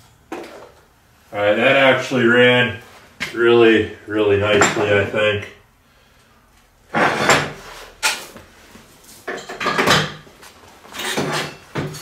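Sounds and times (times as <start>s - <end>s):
metal clanking and scraping: 6.9s - 8.3s, 10.9s - 12.0s.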